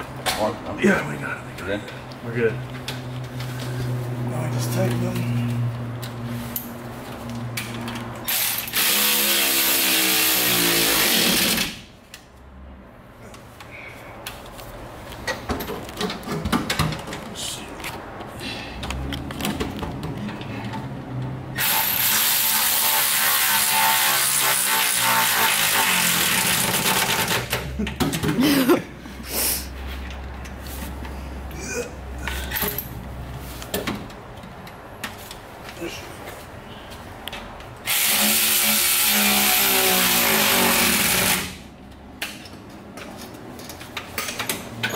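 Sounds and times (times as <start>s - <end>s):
handheld power tool burst: 8.2s - 11.8s, 21.6s - 27.6s, 37.8s - 41.6s.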